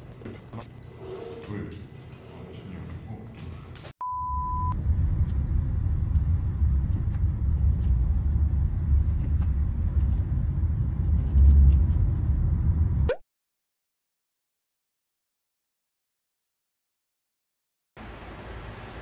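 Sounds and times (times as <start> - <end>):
short beep: 4.0 - 4.8
road and engine rumble in car: 4.8 - 13.1.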